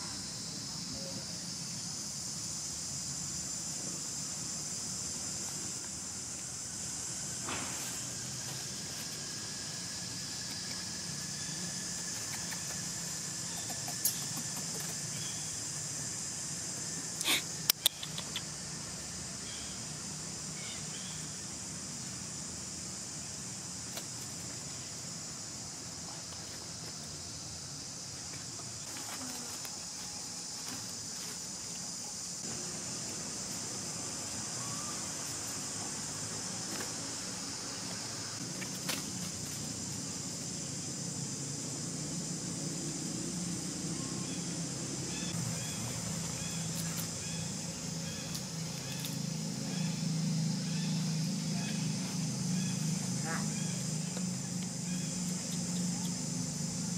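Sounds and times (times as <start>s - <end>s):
high insect drone: 0.0s - 56.9s
sharp clicks: 17.2s - 18.5s.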